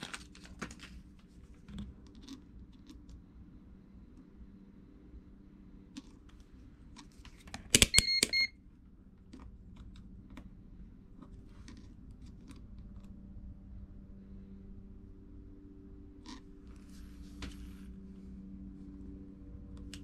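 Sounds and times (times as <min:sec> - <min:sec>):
short high beep: 0:07.9 - 0:08.5.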